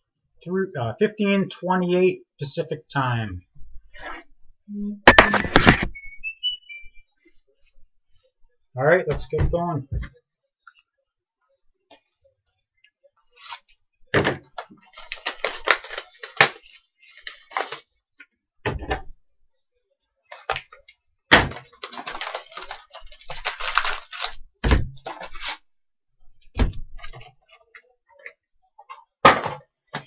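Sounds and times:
plastic and cardboard tearing: 14.5s - 18.0s, 20.3s - 25.7s.

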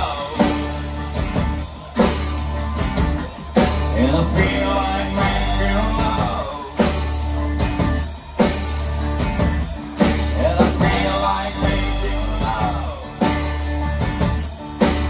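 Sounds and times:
bass: 0.0s - 15.0s
drum beat: 0.0s - 15.0s
electric guitar: 0.0s - 15.0s
person singing: 3.6s - 7.6s, 10.0s - 13.4s.

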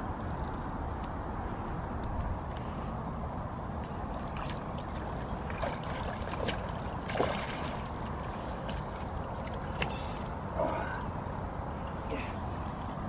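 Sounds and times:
fish splashing and thrashing: 4.2s - 10.9s.

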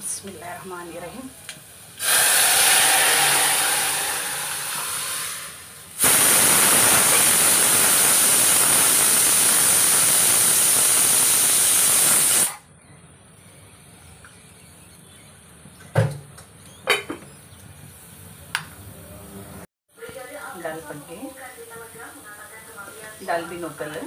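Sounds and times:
food sizzling in hot oil: 0.0s - 12.6s
loud steady sizzling hiss: 0.0s - 15.6s, 17.4s - 24.0s.

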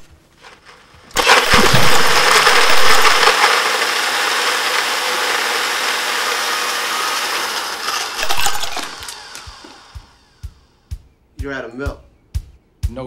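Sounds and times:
blender running: 1.2s - 10.4s.

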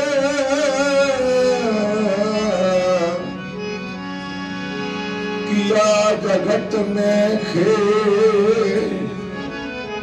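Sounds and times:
man singing devotional song: 0.0s - 3.4s, 5.4s - 9.5s
harmonium drone: 0.0s - 10.0s.

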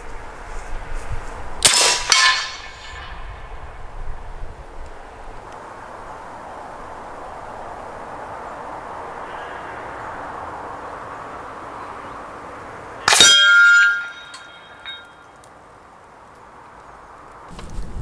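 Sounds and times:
steel plate target clanging: 1.6s - 3.5s, 13.0s - 15.4s.

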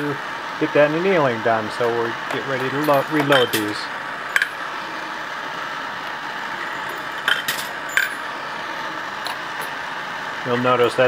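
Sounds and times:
gas torches hissing: 0.0s - 11.0s
sharp metallic clinks: 2.6s - 4.6s.

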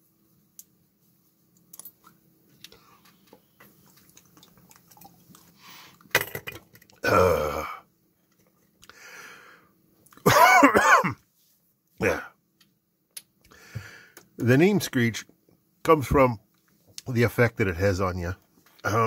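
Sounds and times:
man's throaty vocal sound: 7.0s - 7.8s, 12.0s - 12.3s.

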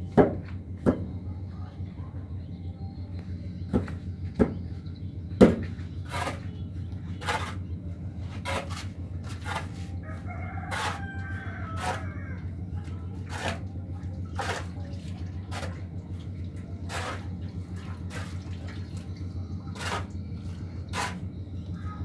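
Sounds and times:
steady low hum: 0.0s - 22.0s
blade scraping through mortar: 6.0s - 6.5s, 7.2s - 7.6s, 8.2s - 9.9s, 10.7s - 11.1s, 11.8s - 12.1s, 13.2s - 13.7s, 14.3s - 14.8s, 15.5s - 15.9s, 16.8s - 17.4s, 19.7s - 20.2s, 20.9s - 21.2s
rooster crowing: 10.0s - 12.6s.

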